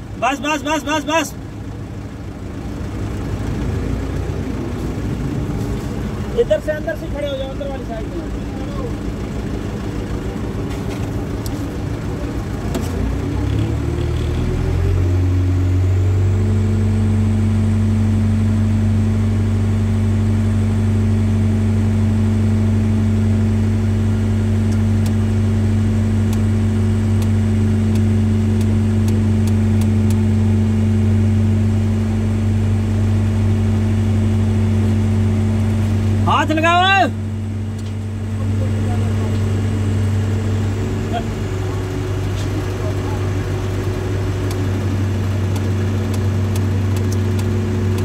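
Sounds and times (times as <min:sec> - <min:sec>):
crane engine revving: 0:00.0 - 0:48.0.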